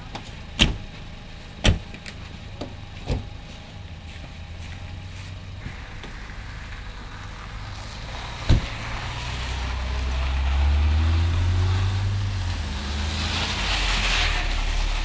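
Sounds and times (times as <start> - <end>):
tyres crunching on gravel: 0.0 - 15.0
car driving past: 4.5 - 15.0
sharp thump: 8.4 - 8.8.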